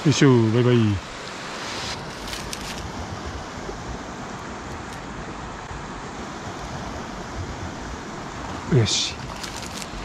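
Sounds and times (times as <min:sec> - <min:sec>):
stream water rushing: 0:00.0 - 0:10.0
brief rustles: 0:02.1 - 0:02.9, 0:09.2 - 0:10.0.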